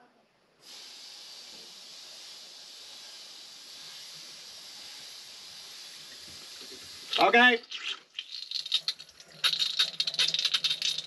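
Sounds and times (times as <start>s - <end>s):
compressed air hissing: 0.6s - 7.2s.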